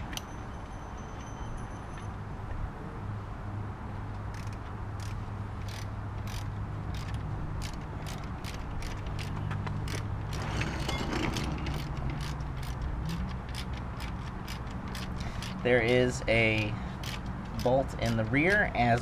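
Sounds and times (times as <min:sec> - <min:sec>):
ratchet wrench clicking: 0:04.3 - 0:10.4, 0:11.3 - 0:19.0.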